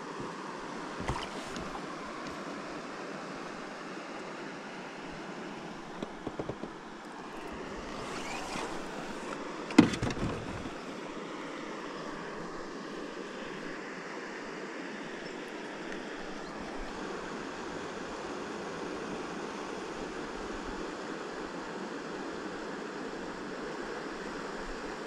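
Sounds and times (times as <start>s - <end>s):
small waves lapping: 0.0s - 4.2s, 5.0s - 13.8s.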